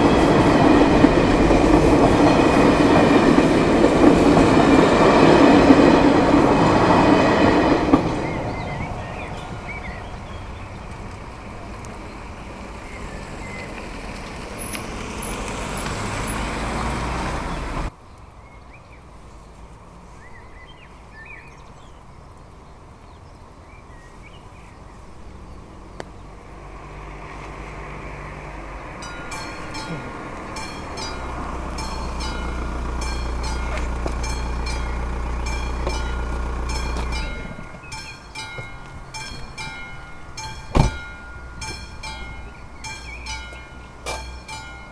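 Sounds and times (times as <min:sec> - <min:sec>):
crossing warning bell ringing: 0:00.0 - 0:10.6, 0:28.8 - 0:44.9
train running past: 0:00.0 - 0:17.9, 0:25.6 - 0:44.9
low vehicle rumble: 0:00.0 - 0:44.9.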